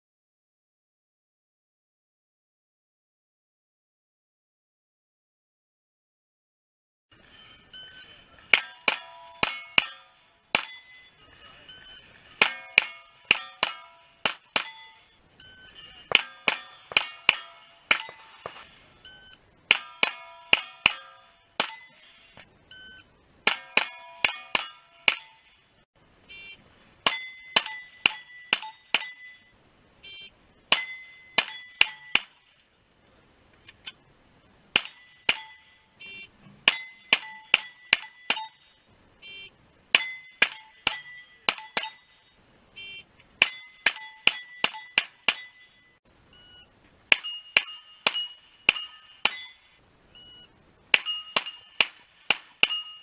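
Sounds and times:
steel target plate ringing: 7.2s - 25.9s, 27.0s - 29.6s, 30.7s - 32.6s, 34.7s - 39.0s, 39.9s - 42.5s, 43.4s - 46.0s, 47.1s - 53.0s
shot timer beep: 7.7s - 8.1s, 10.6s - 13.9s, 14.6s - 18.2s, 19.0s - 19.4s, 22.7s - 23.1s, 43.6s - 49.6s, 50.2s - 51.8s
gunshots: 16.1s - 18.7s, 50.9s - 52.8s.

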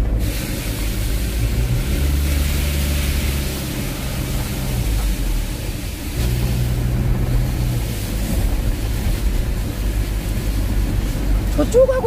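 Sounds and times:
car engine hum: 0.0s - 12.0s
tyres and rain hissing: 0.0s - 12.0s.

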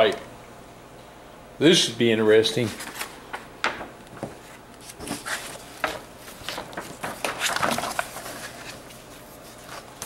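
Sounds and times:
paper maps rustling and crinkling: 2.6s - 3.5s, 4.1s - 10.0s.

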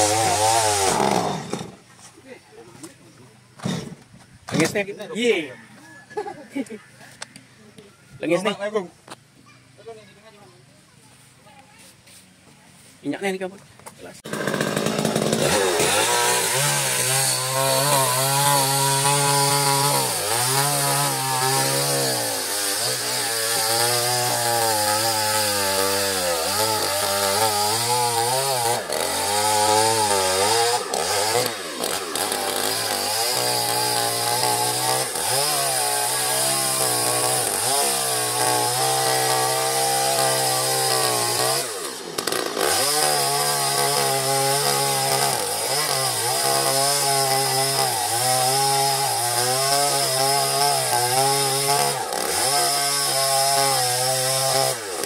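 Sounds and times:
chainsaw cutting wood: 0.0s - 1.9s, 3.6s - 4.8s, 14.2s - 55.0s.

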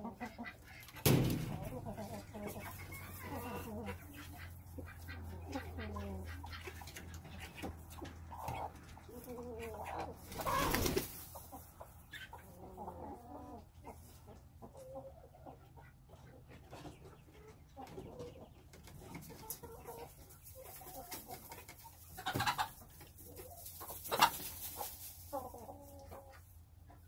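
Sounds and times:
chickens clucking softly: 0.0s - 27.0s
hen scuffling across straw: 0.2s - 12.3s, 19.0s - 26.5s.

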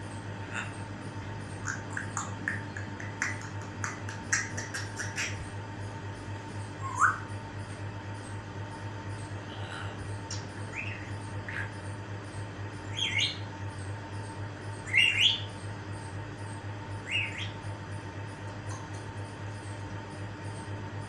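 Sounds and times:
steady low hum: 0.0s - 21.0s
parrot chirping: 1.4s - 5.5s, 6.6s - 7.7s, 10.3s - 13.5s, 14.7s - 15.6s, 17.0s - 17.7s.

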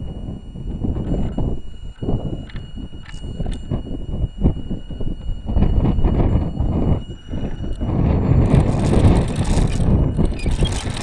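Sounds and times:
rc car rumbling over rough ground: 5.6s - 11.0s.

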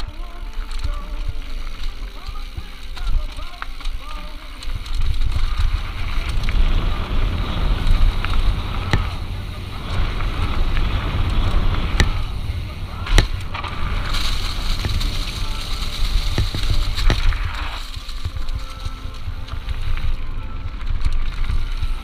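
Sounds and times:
bike rattling over rough ground: 0.0s - 22.0s
wind rumble on camera: 4.7s - 22.0s.

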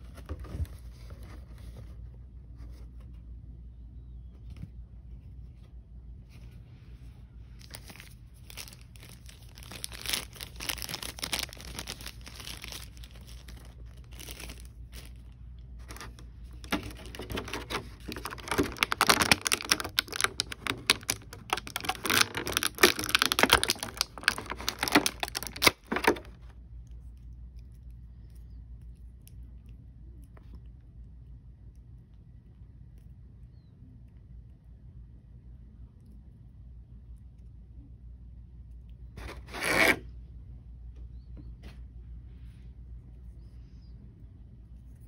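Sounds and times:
plastic packaging crinkling: 7.6s - 26.5s, 39.2s - 40.0s.

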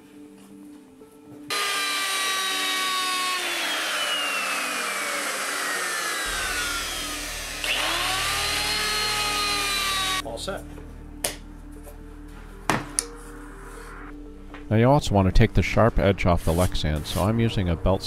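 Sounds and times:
router motor whine cutting plastic: 1.5s - 10.2s.

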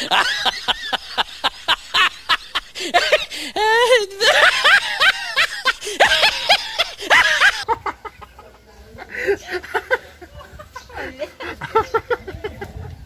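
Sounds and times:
high rising laugh cries: 0.0s - 8.2s
man and woman laughing softly: 0.0s - 13.0s.

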